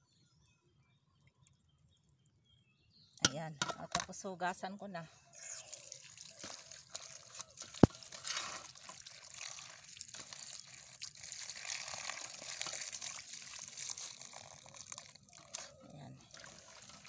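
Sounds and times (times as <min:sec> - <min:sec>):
water splashing into metal basin: 0:05.8 - 0:17.0.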